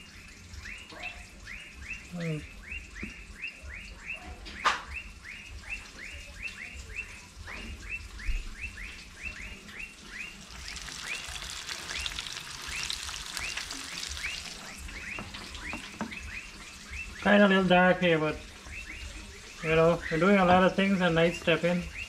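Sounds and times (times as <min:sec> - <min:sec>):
fish frying in hot oil: 0:04.9 - 0:22.0.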